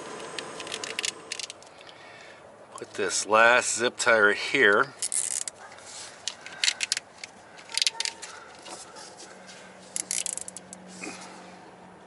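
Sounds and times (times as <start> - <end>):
zip tie ratcheting clicks: 5.0 - 5.6, 9.9 - 10.8.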